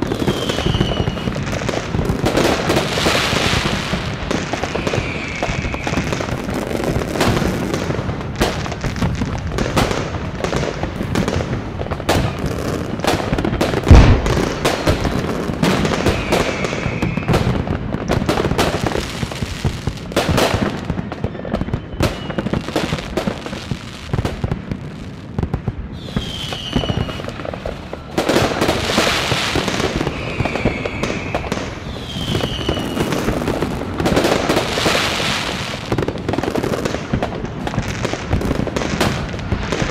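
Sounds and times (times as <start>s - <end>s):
rising rocket whistles: 0.0s - 1.9s, 2.7s - 7.3s, 13.9s - 17.8s, 21.1s - 23.0s, 25.9s - 35.9s
fireworks crackling and popping: 0.0s - 39.9s
heavy firework boom: 13.3s - 18.9s.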